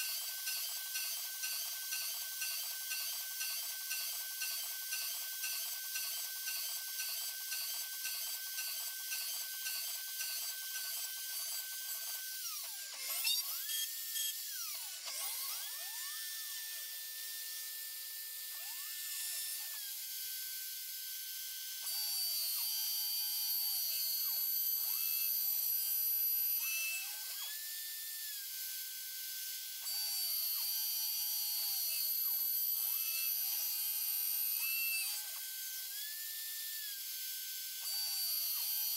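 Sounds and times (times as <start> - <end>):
milling machine spindle whine: 0.0 - 21.7, 30.1 - 38.9.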